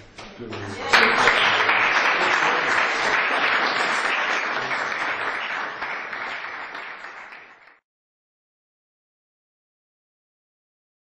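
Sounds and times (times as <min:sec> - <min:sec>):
audience applauding: 0:00.5 - 0:07.8.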